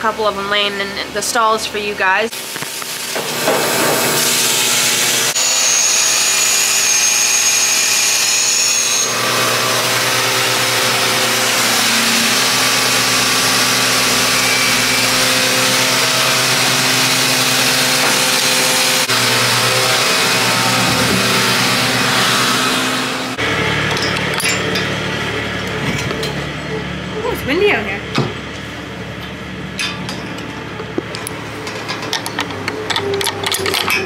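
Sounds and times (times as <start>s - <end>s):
machine hum: 9.0s - 34.0s
high whine: 9.9s - 28.1s.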